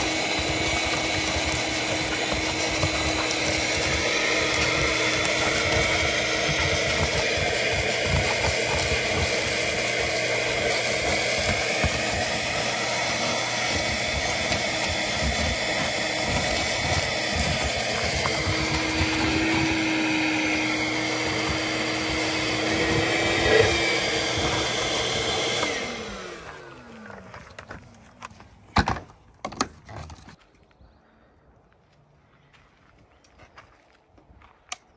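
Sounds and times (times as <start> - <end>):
vacuum motor winding down: 0.0 - 27.6
shop vacuum running: 0.0 - 27.8.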